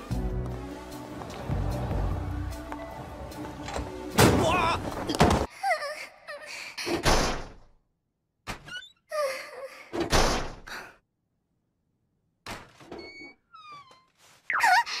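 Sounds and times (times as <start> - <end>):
locker door banging: 3.6 - 5.5.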